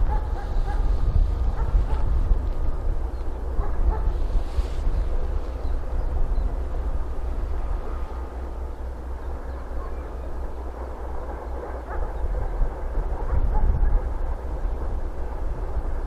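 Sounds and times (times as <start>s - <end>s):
diesel locomotive engine rumbling: 0.0s - 16.0s.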